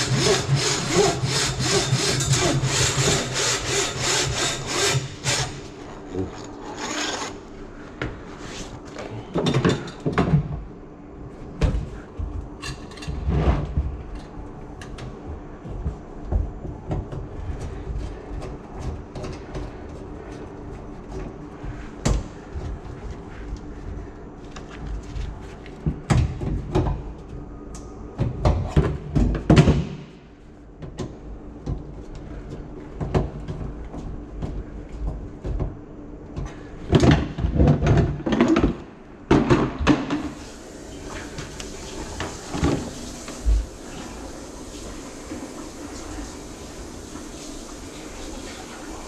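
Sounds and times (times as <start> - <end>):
steady low hum: 0.0 - 47.2.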